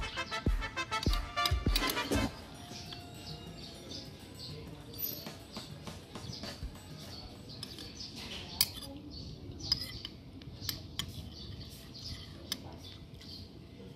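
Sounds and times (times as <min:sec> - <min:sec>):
birds chirping: 0:00.0 - 0:13.9
metal spoon clinking against bowl: 0:01.0 - 0:06.0, 0:06.7 - 0:13.5.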